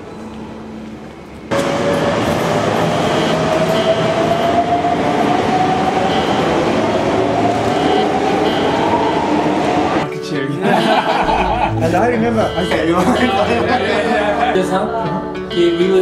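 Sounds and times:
electric train pulling out: 0.0 - 10.1.

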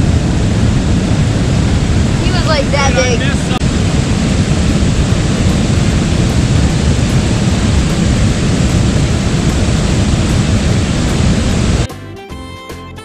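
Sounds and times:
wind rumble on microphone: 0.0 - 11.9
whitewater rapids rushing: 2.1 - 11.9.

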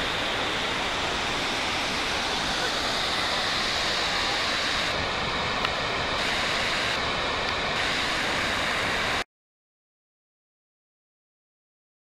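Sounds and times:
waterfall roaring: 0.0 - 9.2.

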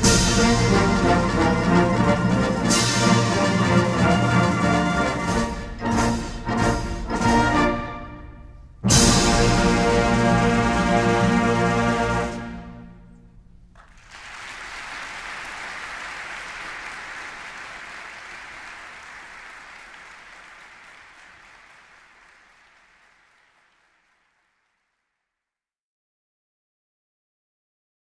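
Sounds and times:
audience applause: 13.8 - 25.0.

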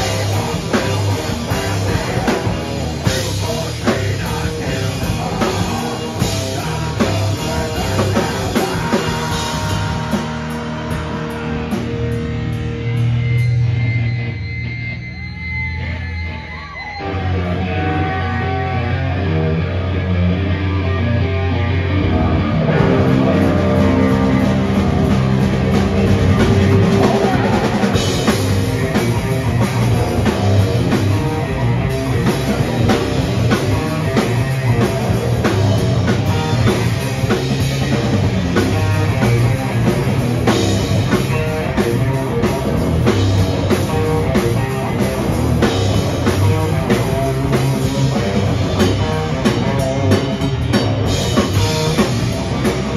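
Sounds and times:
drum kit: 0.0 - 14.4, 17.2 - 52.9
bass guitar: 0.0 - 52.9
distorted electric guitar: 0.0 - 52.9.

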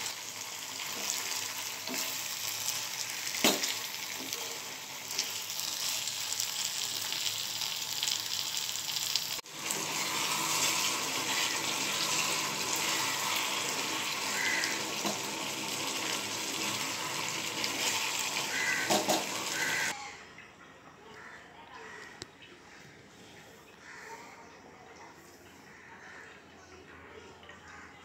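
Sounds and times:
curry sizzling in a frying pan: 0.0 - 20.0.

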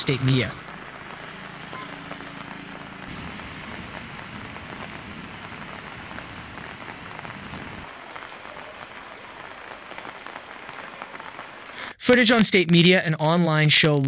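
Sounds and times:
heavy rain on water and pavement: 0.0 - 11.9
low rumble: 0.6 - 8.0.

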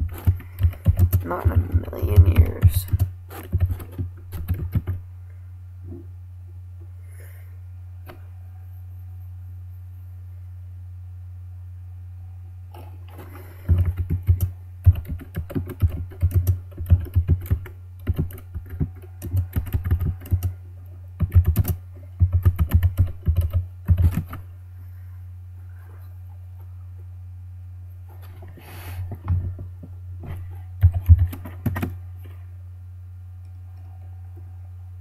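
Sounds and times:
typing on keyboard: 0.0 - 5.0, 13.7 - 20.5, 21.2 - 24.4, 30.8 - 31.9
steady low hum: 0.0 - 35.0.

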